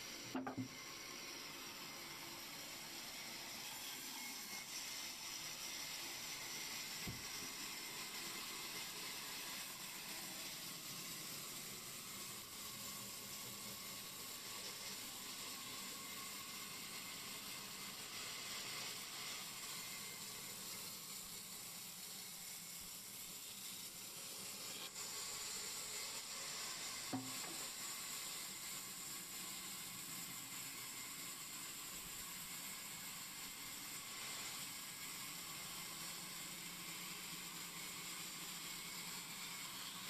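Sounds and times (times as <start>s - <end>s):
band saw cutting wood: 26.2s - 28.9s.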